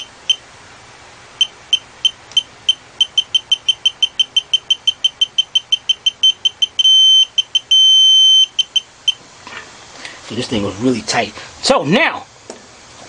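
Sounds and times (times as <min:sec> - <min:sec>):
long steady beep: 0:00.0 - 0:00.4, 0:01.4 - 0:09.2
torque wrench short high beeps: 0:01.4 - 0:08.8.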